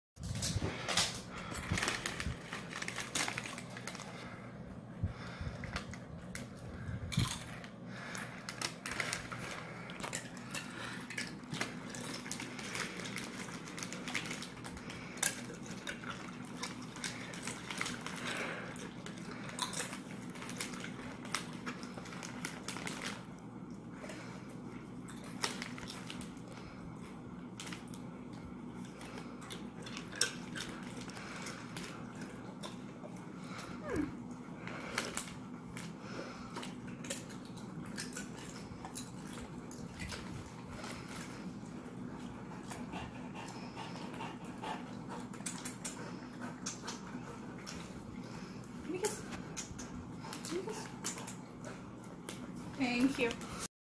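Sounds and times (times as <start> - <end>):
plastic chip bag crinkling: 0.2 - 4.6, 5.2 - 24.4, 25.0 - 28.2, 28.9 - 32.8
dogs chewing: 0.2 - 53.7
low steady hum: 0.2 - 53.7.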